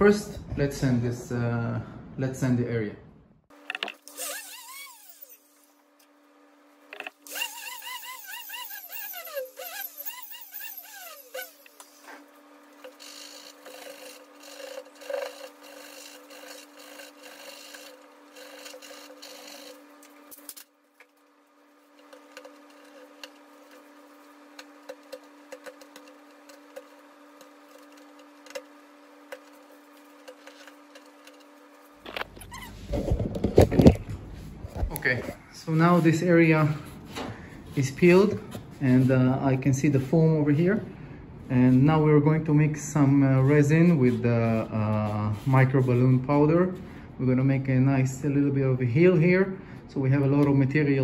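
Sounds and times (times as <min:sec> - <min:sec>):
orbital sander running: 0:07.2 - 0:20.0
scratchy rubbing: 0:07.3 - 0:11.7, 0:12.8 - 0:19.8, 0:22.0 - 0:23.9.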